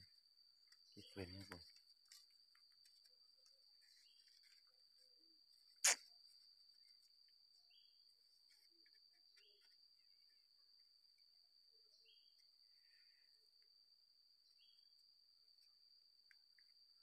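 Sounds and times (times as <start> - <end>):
cricket trilling: 0.0 - 17.0
sharp click: 5.8 - 6.0.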